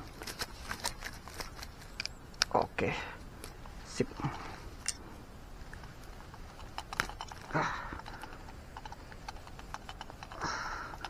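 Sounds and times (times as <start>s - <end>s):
fishing gear clicks and rustles: 0.0s - 2.6s, 5.6s - 11.0s
grass rustling: 0.0s - 11.0s.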